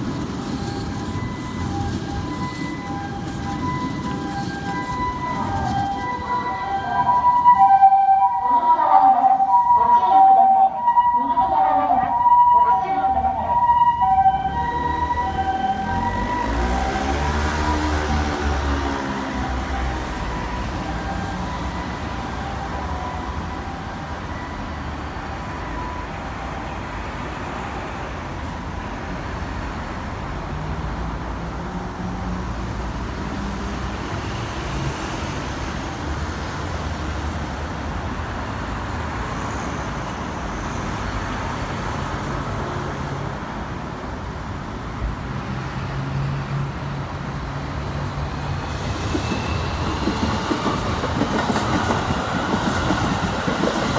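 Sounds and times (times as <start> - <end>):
electric train approaching: 0.0 - 29.4, 47.5 - 53.9
highway traffic noise: 0.0 - 53.9.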